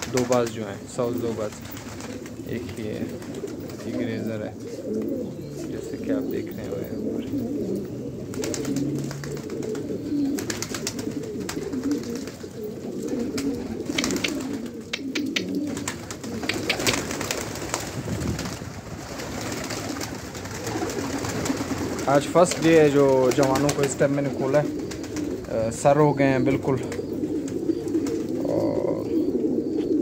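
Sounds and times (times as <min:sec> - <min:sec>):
wings flapping and clapping: 0:00.0 - 0:04.2, 0:08.3 - 0:25.8, 0:26.8 - 0:28.4
pigeons cooing: 0:00.0 - 0:30.0.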